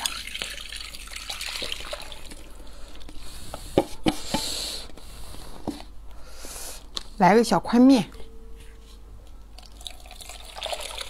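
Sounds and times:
noodles and broth splashing: 0:00.0 - 0:02.6, 0:09.6 - 0:11.0.

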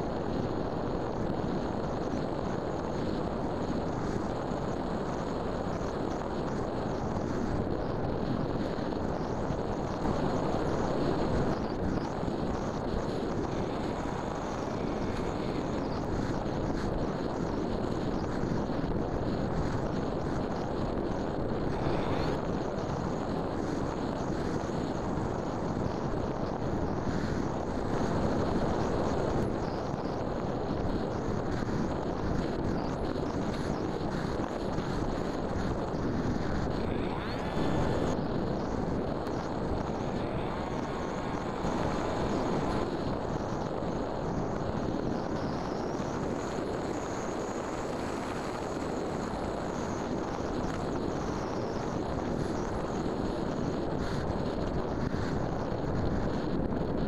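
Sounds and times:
wind rushing over microphone: 0:00.0 - 0:57.0
faint rising whine: 0:07.0 - 0:53.2
propeller motor drone: 0:10.0 - 0:16.9, 0:35.8 - 0:50.0.

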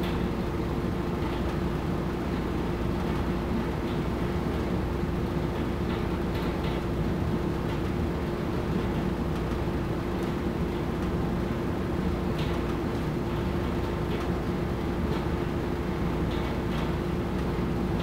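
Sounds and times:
machine hum and rumble: 0:00.0 - 0:18.0.

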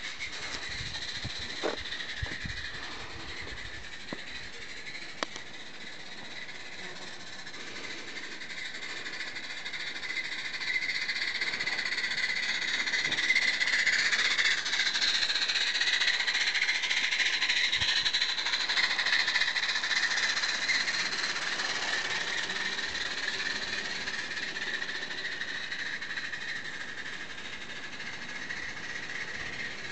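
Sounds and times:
hissing steam exhaust: 0:00.0 - 0:29.9
steam locomotive chuffing: 0:00.0 - 0:29.9.

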